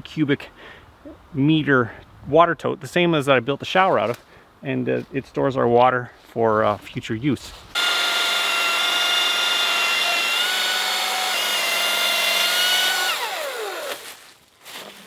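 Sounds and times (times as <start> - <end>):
electric chainsaw cutting wood: 7.8 - 14.1.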